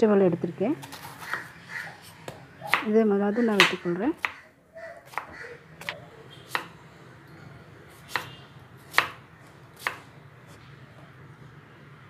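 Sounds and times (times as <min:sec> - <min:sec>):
knife chopping on wooden board: 0:02.7 - 0:02.9, 0:03.5 - 0:04.4, 0:05.1 - 0:06.7, 0:08.0 - 0:09.2, 0:09.8 - 0:10.0.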